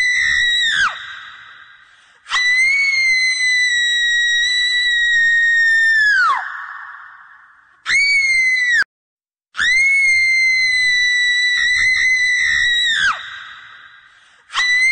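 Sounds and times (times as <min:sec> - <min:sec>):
high-pitched eerie scream: 0:00.0 - 0:01.7, 0:09.6 - 0:14.9.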